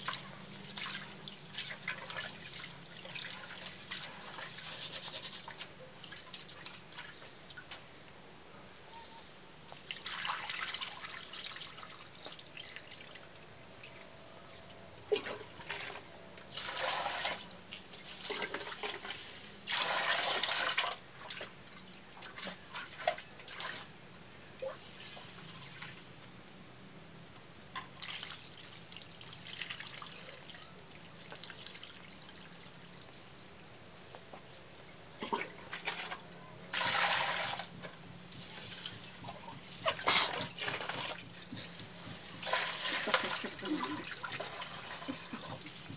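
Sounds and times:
water swishing in a pot: 0.0s - 7.6s, 15.1s - 23.9s, 24.6s - 26.1s, 34.5s - 45.9s
water pouring into a pot: 18.5s - 21.0s.

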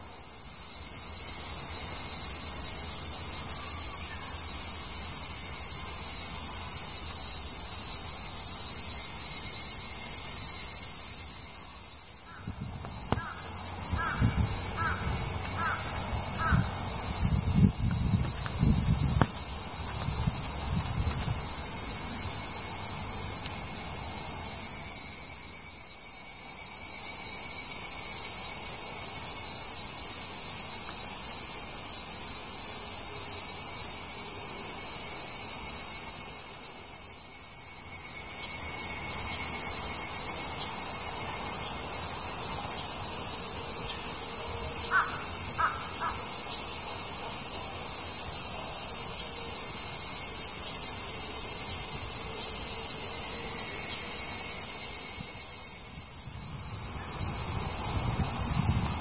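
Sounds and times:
cicadas chorus: 0.0s - 59.0s
bird calls: 13.1s - 16.7s, 44.8s - 46.6s.

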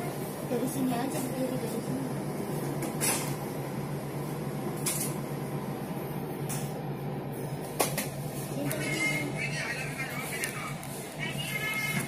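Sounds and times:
train carriage hum: 0.0s - 12.0s.

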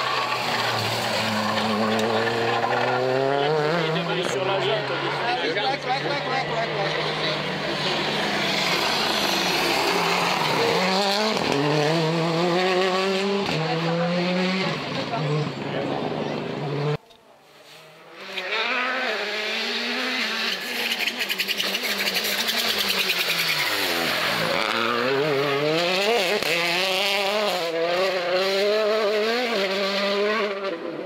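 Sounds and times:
rally car engine at high revs: 0.0s - 17.0s, 17.6s - 31.0s.

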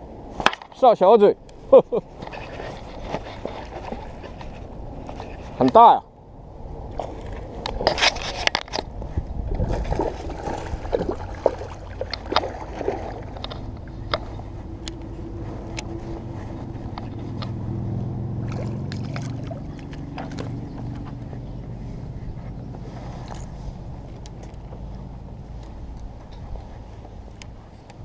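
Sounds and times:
fish thrashing water splashing: 9.6s - 13.4s, 18.4s - 20.4s.

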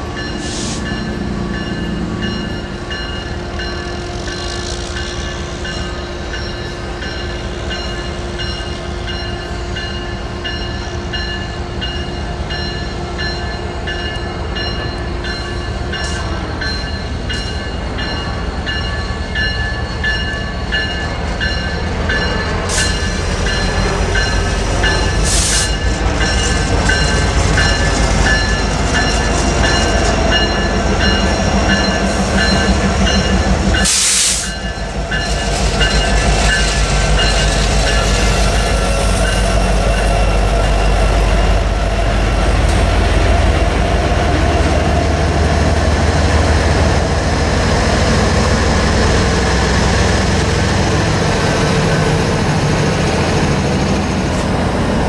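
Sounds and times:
diesel locomotive engine rumble: 0.0s - 55.0s
train wheel noise: 0.0s - 55.0s.

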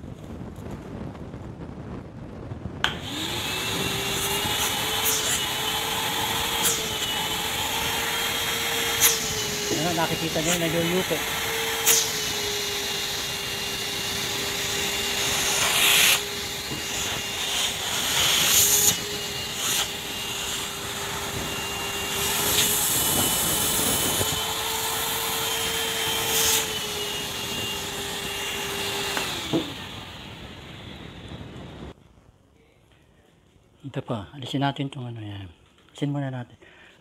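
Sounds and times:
vacuum cleaner whining: 2.8s - 32.0s.

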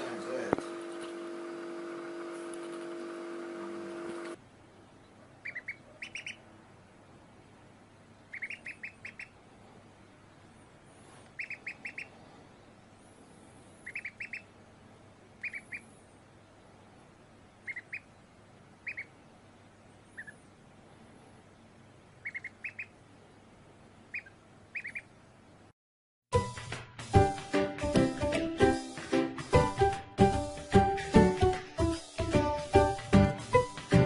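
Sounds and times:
duckling peeping: 5.0s - 6.5s, 8.2s - 9.5s, 11.3s - 12.2s, 13.6s - 14.6s, 15.4s - 16.0s, 17.6s - 19.2s, 20.0s - 20.5s, 22.1s - 23.2s, 24.0s - 25.3s.

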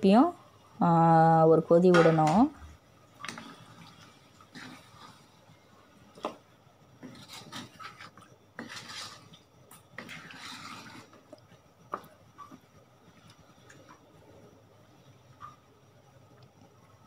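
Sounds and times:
wooden spatula scraping a wok: 3.1s - 12.7s.

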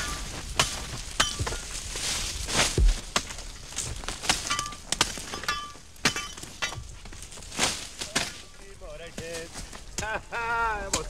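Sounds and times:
machete chopping cane: 0.0s - 1.6s, 4.0s - 6.9s.

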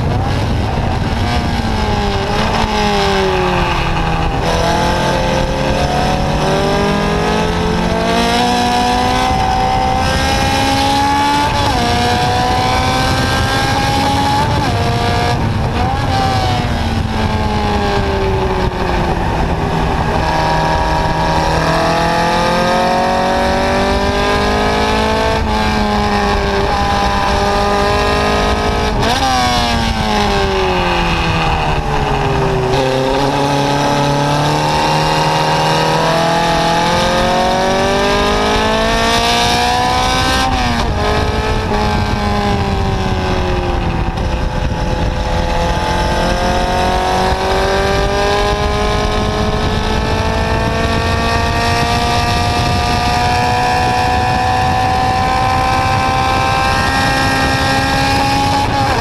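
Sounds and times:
racing car engine revving: 0.0s - 59.0s.

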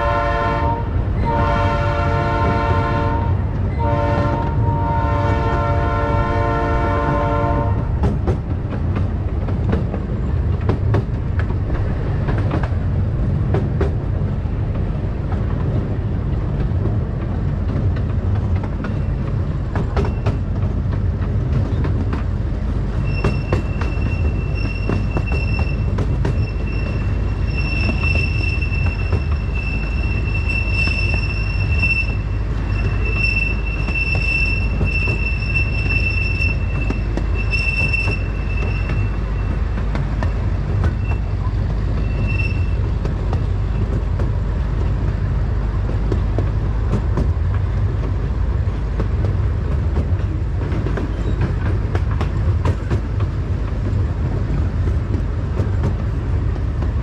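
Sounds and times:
small train rumbling on track: 0.0s - 57.0s
wheels squealing: 22.9s - 43.1s, 51.0s - 51.8s
clicks from rail joints: 42.8s - 57.0s.

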